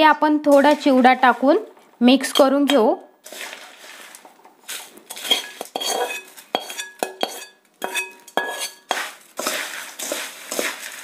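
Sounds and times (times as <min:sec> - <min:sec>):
metal spoon scraping a metal pan: 0:02.2 - 0:03.6, 0:04.7 - 0:11.0.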